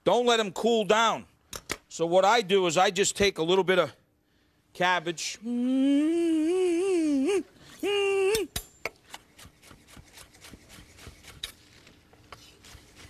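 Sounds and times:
hummed vocal note: 5.4 - 8.5.

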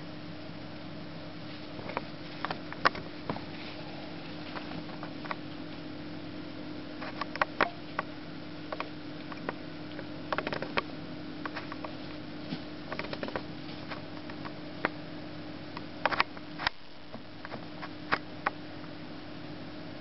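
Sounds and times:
low hum: 0.0 - 20.0
rabbit scratching and rustling: 1.4 - 5.8, 7.0 - 8.1, 10.3 - 15.0.

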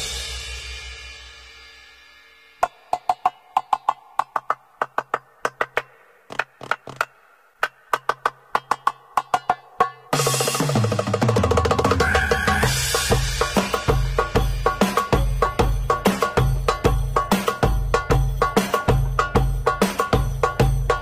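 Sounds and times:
hand percussion strikes: 2.6 - 21.0
belly-dance music: 9.4 - 21.0.

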